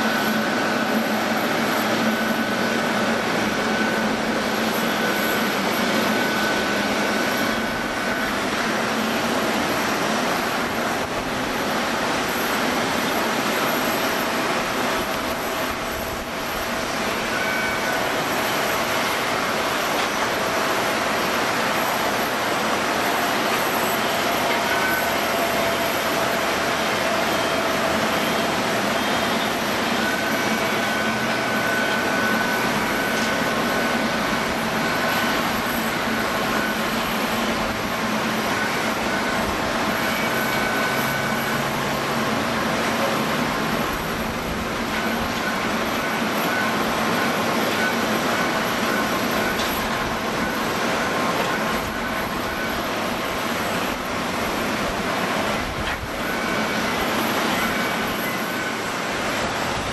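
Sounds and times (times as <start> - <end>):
jet engines whining: 0.0 - 59.9.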